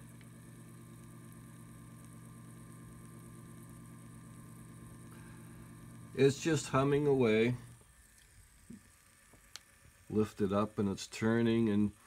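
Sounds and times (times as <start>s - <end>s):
gearmotor low hum: 0.0s - 12.0s.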